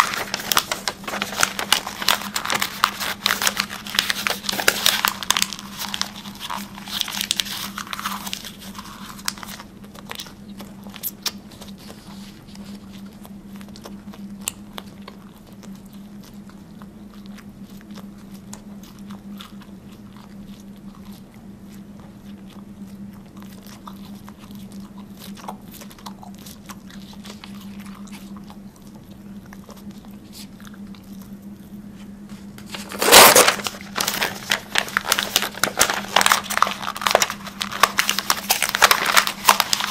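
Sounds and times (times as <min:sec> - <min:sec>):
paper crinkling: 0:00.0 - 0:15.3, 0:31.9 - 0:39.9
chewing with crunching clicks: 0:00.0 - 0:32.8.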